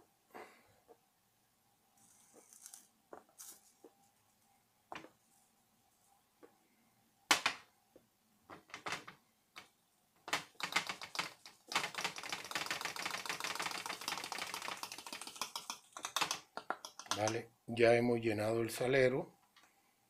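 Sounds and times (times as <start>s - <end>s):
clicks and taps: 7.3s - 17.4s
salt grains crackling through funnel: 10.5s - 17.4s.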